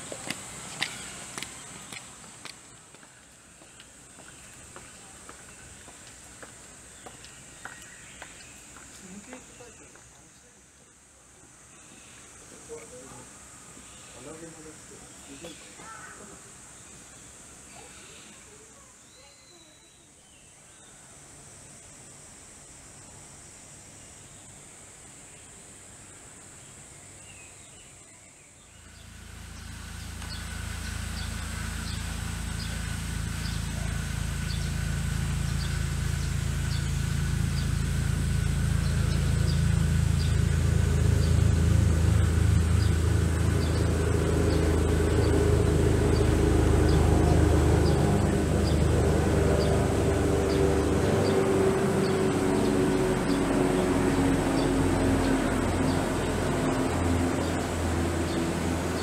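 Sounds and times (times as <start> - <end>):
low mechanical drone with hum: 28.7 - 59.0.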